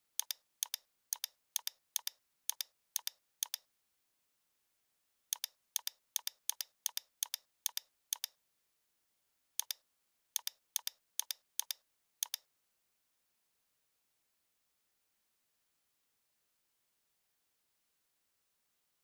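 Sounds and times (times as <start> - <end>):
computer mouse clicking: 0.2 - 3.7, 5.3 - 8.4, 9.6 - 9.8, 10.4 - 12.5.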